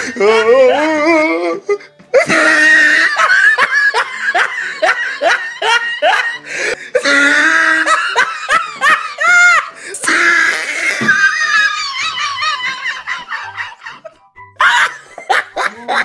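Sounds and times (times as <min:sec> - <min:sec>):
music track: 0:00.0 - 0:16.0
laughter: 0:02.2 - 0:06.4, 0:07.6 - 0:09.8, 0:11.0 - 0:16.0.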